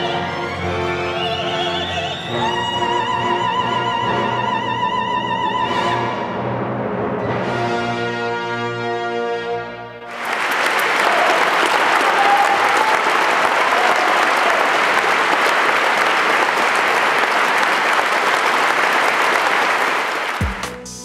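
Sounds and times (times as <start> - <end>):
audience applauding: 10.1 - 20.8.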